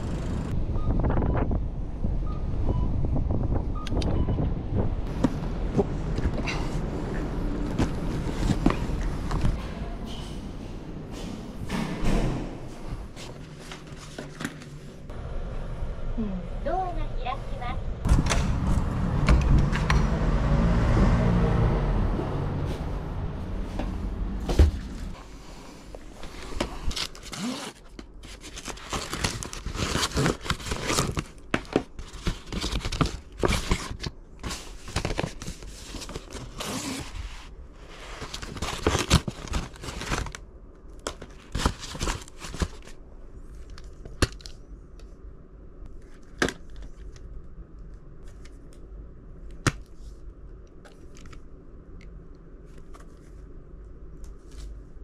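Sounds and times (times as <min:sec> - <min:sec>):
packaging torn and crumpled: 0:27.0 - 0:34.1.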